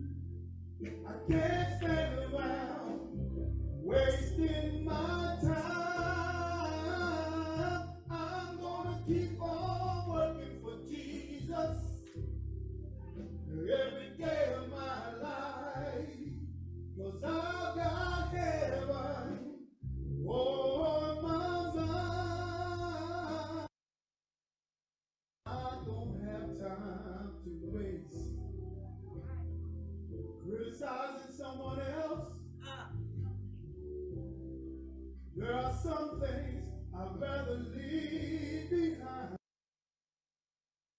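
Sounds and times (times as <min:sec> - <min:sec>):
man singing into a microphone: 0:00.8 - 0:03.2, 0:03.8 - 0:12.1, 0:13.5 - 0:16.4, 0:17.0 - 0:19.6, 0:20.3 - 0:23.7, 0:25.5 - 0:28.3, 0:30.4 - 0:32.4, 0:35.4 - 0:39.4.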